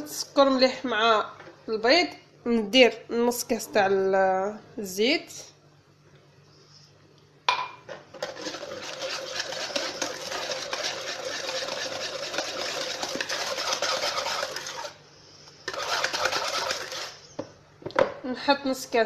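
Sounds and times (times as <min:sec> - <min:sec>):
whisk rattling in plastic bowl: 0:08.2 - 0:15.0, 0:15.7 - 0:17.2.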